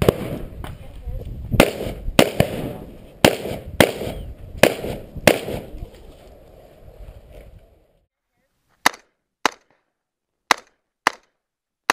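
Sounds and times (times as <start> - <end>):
rifle shots with echo: 0.0 - 0.5, 1.6 - 5.8.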